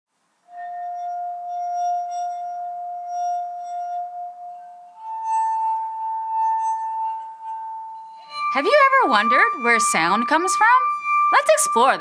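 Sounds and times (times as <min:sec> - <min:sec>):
singing wine glass ringing tone: 0:00.5 - 0:12.0.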